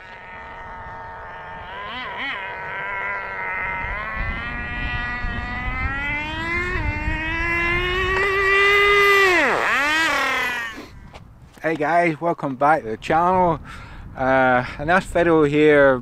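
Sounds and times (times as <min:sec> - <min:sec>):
rc car engine whining: 0:00.0 - 0:11.0.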